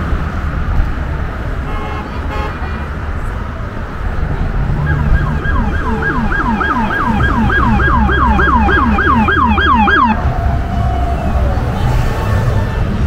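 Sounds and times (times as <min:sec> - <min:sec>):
emergency siren yelping: 0:04.7 - 0:12.8.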